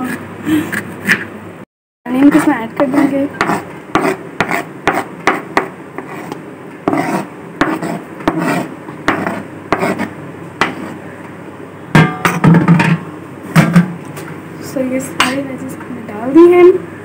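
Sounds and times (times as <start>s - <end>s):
knife scraping cutting board: 0.0s - 1.3s, 2.1s - 11.0s.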